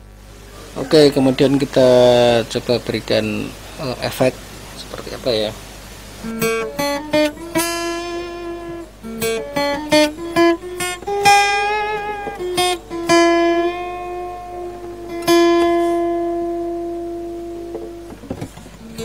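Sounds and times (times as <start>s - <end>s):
acoustic guitar picked notes: 0.0s - 4.4s, 5.2s - 19.0s.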